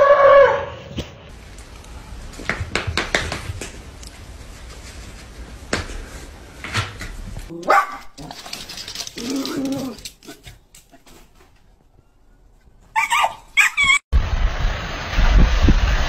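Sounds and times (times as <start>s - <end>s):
dog barking and whining: 7.5s - 8.3s, 12.9s - 14.0s.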